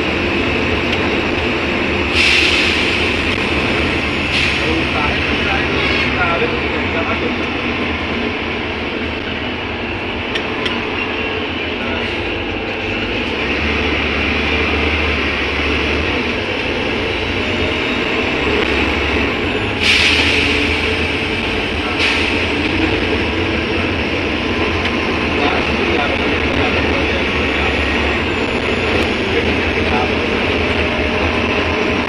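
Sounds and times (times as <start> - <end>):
bus engine drone: 0.0 - 32.0
road noise: 0.0 - 32.0
loud air hiss: 2.1 - 3.3, 19.7 - 21.0, 21.9 - 22.6.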